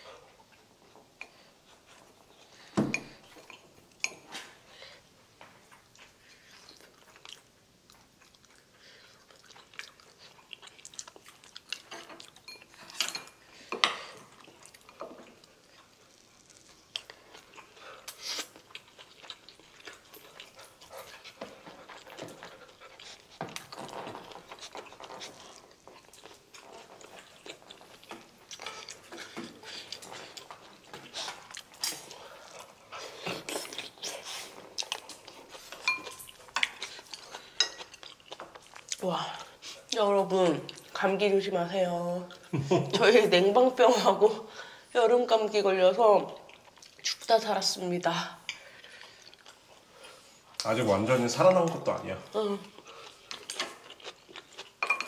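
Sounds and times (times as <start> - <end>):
close chewing: 5.4 - 41.0, 46.2 - 47.6, 48.5 - 55.0.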